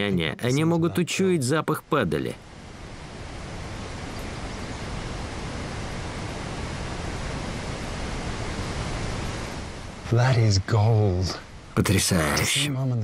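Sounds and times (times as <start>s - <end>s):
wind-like outdoor hiss: 0.0s - 13.0s.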